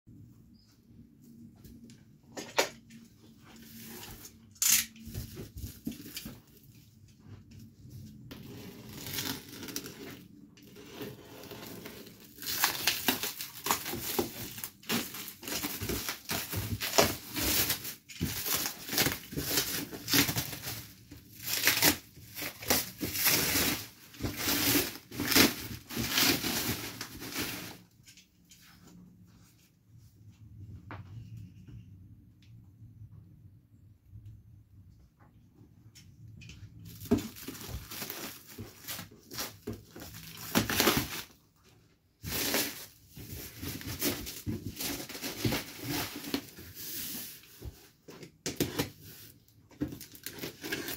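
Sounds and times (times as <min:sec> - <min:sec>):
cardboard box being torn open: 0:11.0 - 0:27.7, 0:37.1 - 0:41.4.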